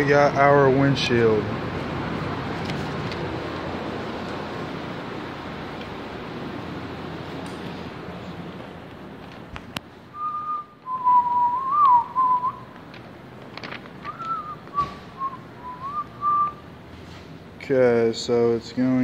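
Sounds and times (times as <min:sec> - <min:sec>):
person whistling a tune: 0:10.2 - 0:12.7, 0:14.1 - 0:16.6.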